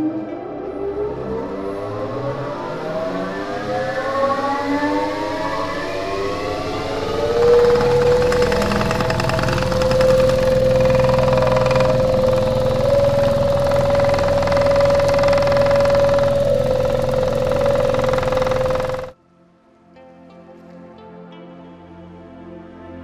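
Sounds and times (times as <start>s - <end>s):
machine motor whining: 5.8s - 19.1s.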